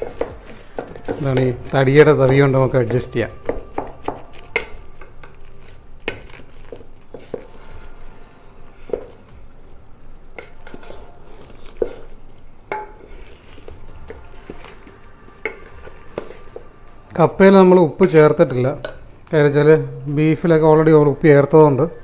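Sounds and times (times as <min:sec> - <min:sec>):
ladle knocking and scraping pot: 0:00.0 - 0:08.1, 0:08.8 - 0:09.2, 0:10.3 - 0:16.8.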